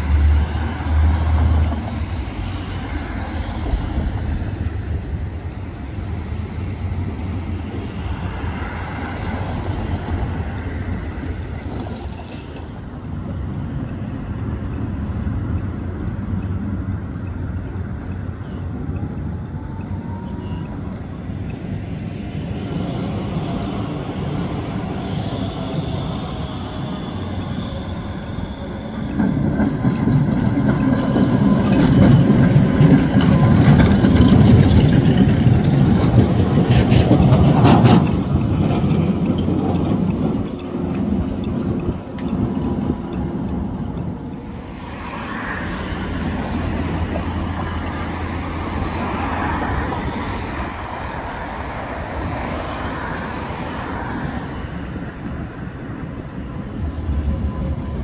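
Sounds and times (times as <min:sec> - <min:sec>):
tram low hum: 0:00.0 - 0:58.0
tram wheels rumbling on rails: 0:00.0 - 0:58.0
wheels clacking over rail joints: 0:10.1 - 0:14.9, 0:27.8 - 0:44.5.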